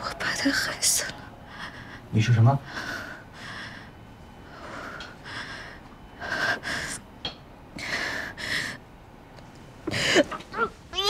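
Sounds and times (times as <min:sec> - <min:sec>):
woman breathing hard: 0:01.4 - 0:02.1, 0:02.7 - 0:07.0, 0:07.8 - 0:08.9.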